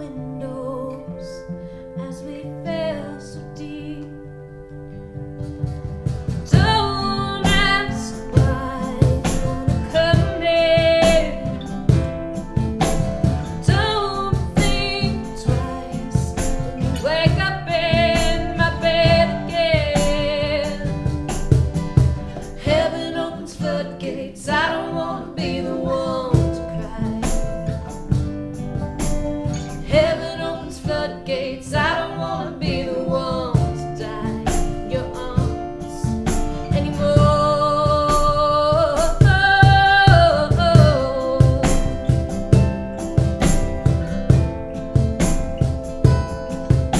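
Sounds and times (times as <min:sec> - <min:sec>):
woman singing: 0:00.0 - 0:04.4, 0:06.4 - 0:21.6, 0:22.2 - 0:28.0, 0:29.4 - 0:43.0
acoustic guitars strumming: 0:00.0 - 0:46.9
keyboard: 0:00.0 - 0:46.9
cajon beat: 0:05.2 - 0:46.9.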